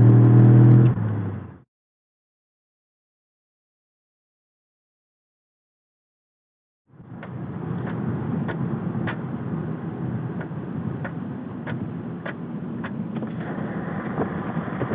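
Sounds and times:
car engine and road rumble: 0.0 - 1.6, 6.9 - 14.9.

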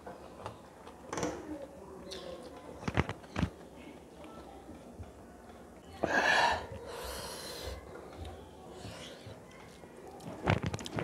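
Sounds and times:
mouth noises while eating: 5.8 - 11.0.

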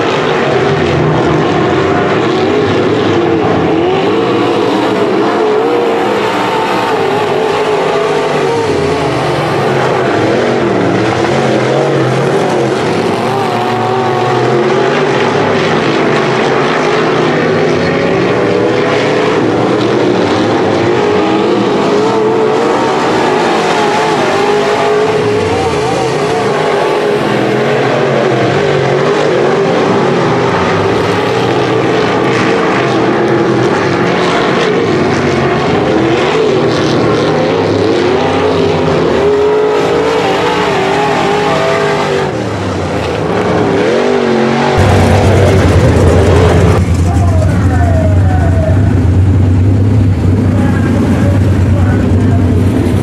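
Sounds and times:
low engine drone: 0.0 - 53.0
race car engines running flat out: 0.0 - 53.0.

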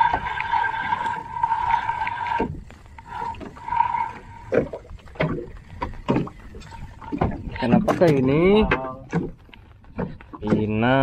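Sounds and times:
fishing reel whirring: 0.0 - 5.7.

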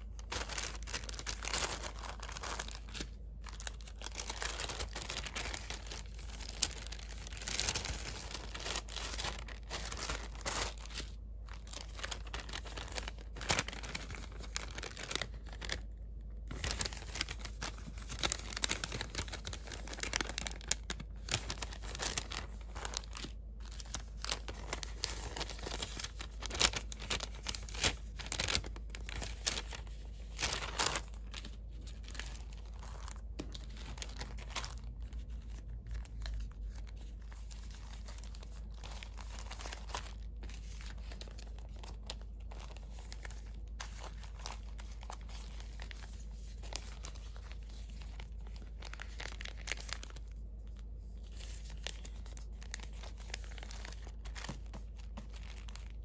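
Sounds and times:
paper bags rustling and crinkling: 0.0 - 56.0.

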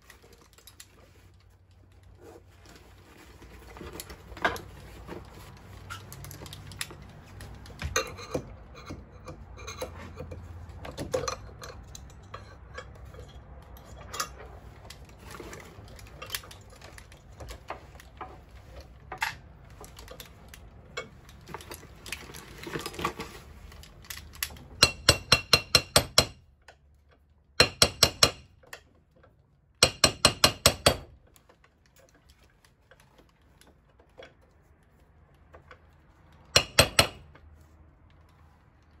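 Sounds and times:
hammer tapping nail: 24.8 - 26.4, 27.6 - 28.5, 29.8 - 31.1, 36.6 - 37.2
metal clicks and knocks on wood: 36.4 - 37.5.

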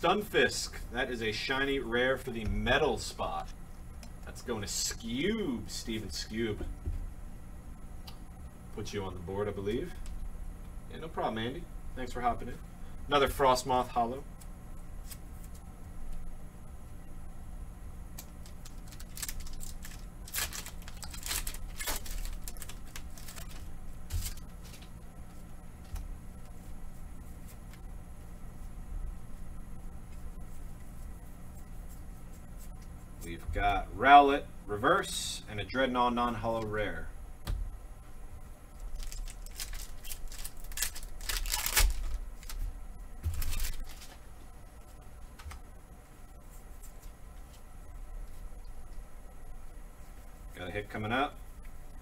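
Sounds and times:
foil wrapper crinkling and tearing: 18.2 - 24.9, 38.8 - 44.2
cards rustling on a mat: 18.2 - 27.8, 38.9 - 44.2.

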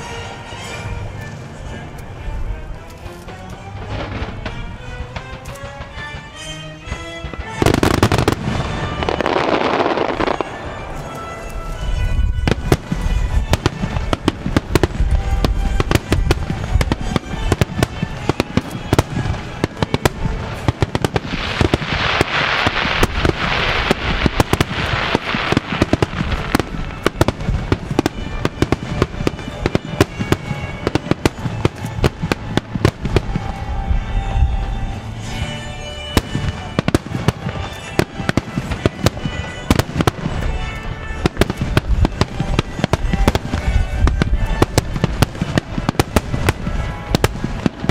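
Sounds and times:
fireworks bursting: 0.0 - 47.9
fireworks hissing: 0.0 - 47.9
music playing: 0.0 - 47.9.

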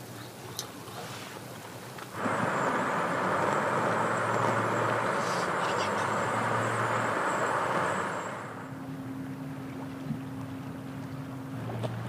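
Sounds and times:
motorcycle engine hum: 2.0 - 10.4
wind and road rush: 2.1 - 8.8.

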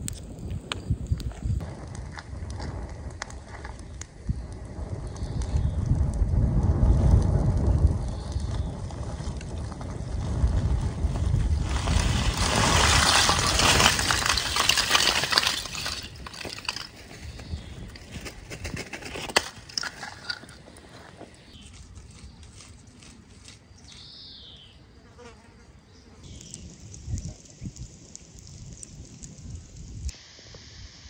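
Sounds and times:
fire crackling: 0.0 - 24.2, 26.2 - 30.8
charcoal clattering onto fire: 11.2 - 20.8.

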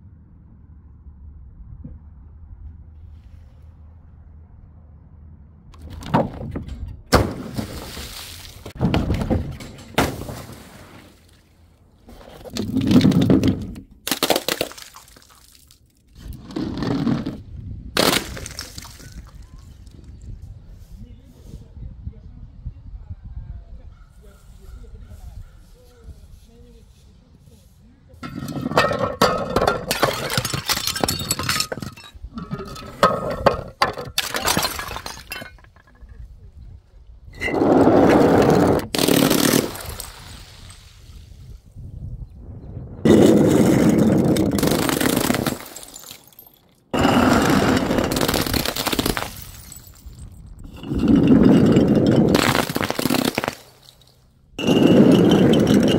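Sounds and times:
glass bottles shattering: 28.2 - 36.1, 38.6 - 40.8, 43.2 - 55.9.

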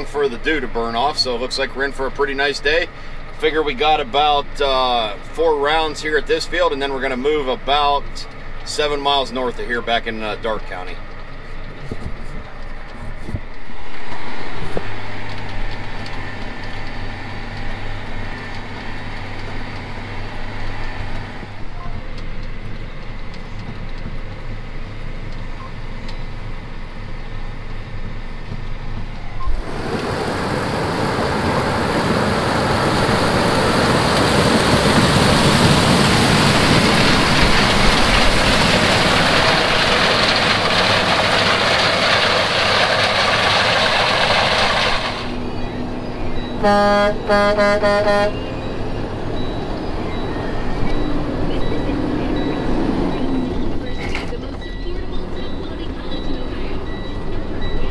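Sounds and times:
combine harvester rushing noise: 0.0 - 23.9, 29.0 - 57.9
tractor engine humming: 0.0 - 57.9
horn short toots: 46.6 - 48.5.

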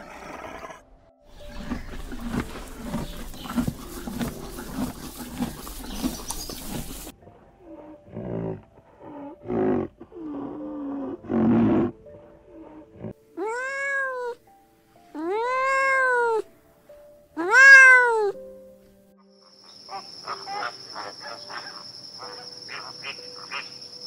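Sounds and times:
cat meowing: 13.4 - 14.4, 15.2 - 16.5, 17.4 - 18.4.

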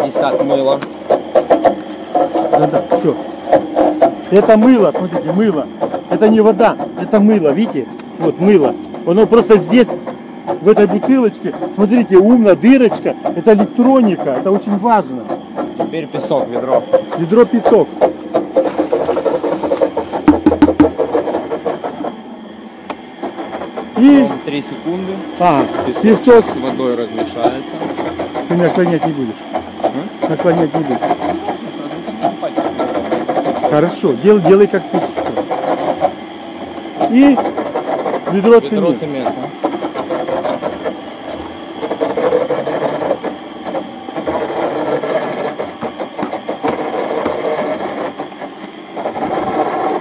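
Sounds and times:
knocks: 0.0 - 8.1, 12.6 - 22.2, 39.4 - 48.8
wet mortar churning: 0.0 - 22.3, 22.9 - 50.0
concrete mixer rattling: 0.0 - 50.0.

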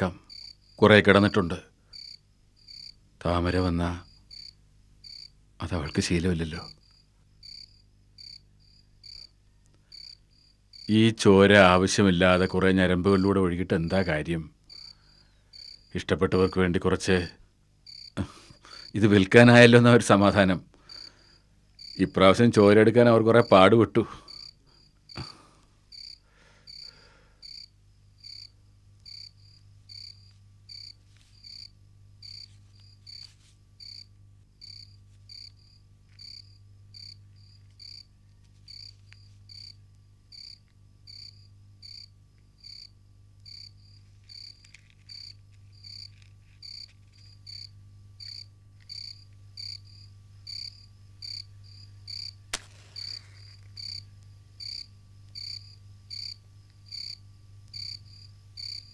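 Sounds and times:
low steady hum: 0.0 - 58.9
sharp click: 52.5 - 53.4.

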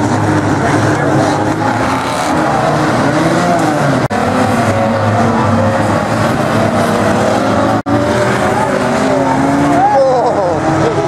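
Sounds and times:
racing car engines revving: 0.0 - 11.0.

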